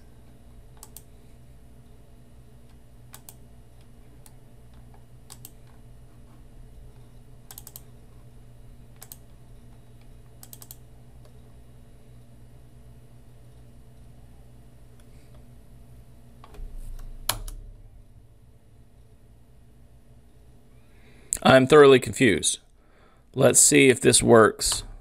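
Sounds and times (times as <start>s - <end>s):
steady low hum: 0.0s - 25.0s
keyboard and mouse clicks: 0.8s - 1.1s, 2.7s - 5.8s, 7.5s - 7.9s, 9.0s - 9.4s, 10.0s - 11.4s, 16.4s - 17.6s.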